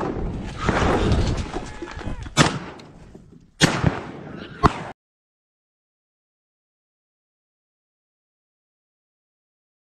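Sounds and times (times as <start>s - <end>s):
loud gunshots: 2.4s - 2.8s, 3.6s - 4.9s.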